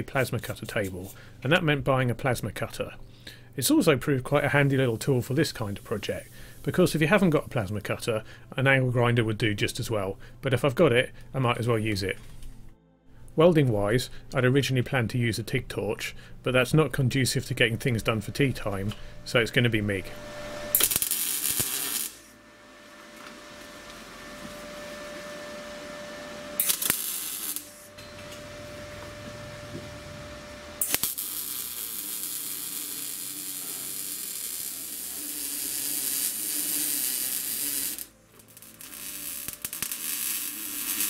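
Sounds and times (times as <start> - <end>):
welder arc crackling: 18.3 - 25.4, 26.5 - 41.0.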